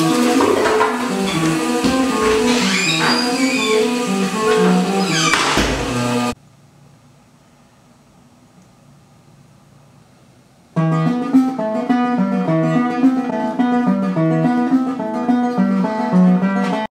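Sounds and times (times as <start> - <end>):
plucked guitar pattern: 10.8 - 16.9.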